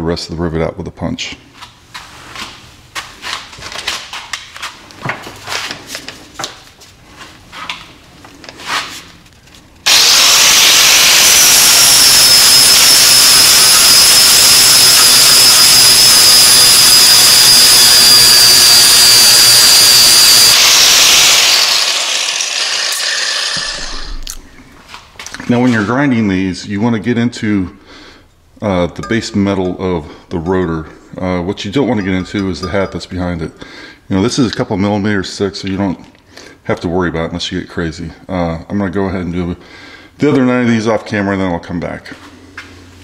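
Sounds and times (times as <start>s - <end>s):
angle grinder grinding steel: 9.9s - 24.4s.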